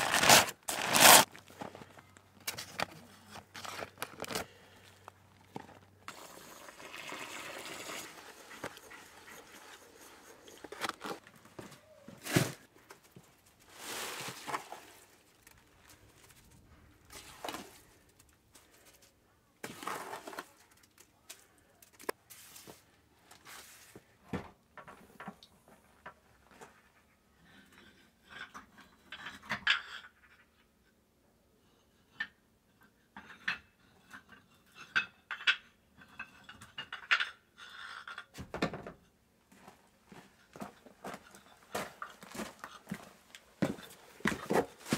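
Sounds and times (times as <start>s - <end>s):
trowel scraping mortar: 0.0s - 1.3s, 6.1s - 11.2s.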